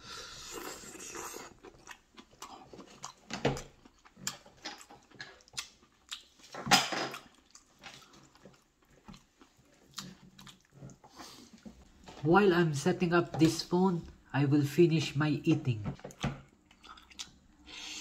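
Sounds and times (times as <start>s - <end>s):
person chewing noodles: 0.0s - 11.9s, 16.0s - 18.0s.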